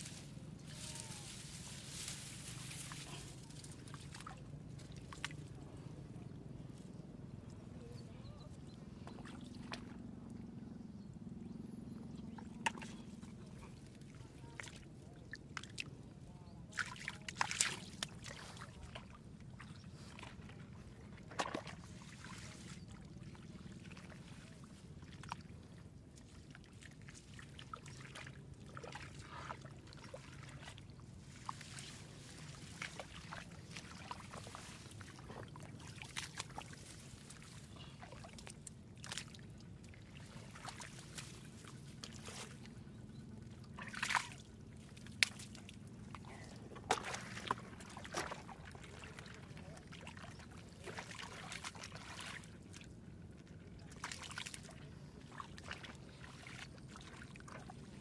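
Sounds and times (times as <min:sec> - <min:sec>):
hands splashing in muddy water: 0:16.7 - 0:19.1, 0:30.2 - 0:42.7, 0:43.7 - 0:45.8, 0:46.7 - 0:52.8, 0:53.9 - 0:57.7.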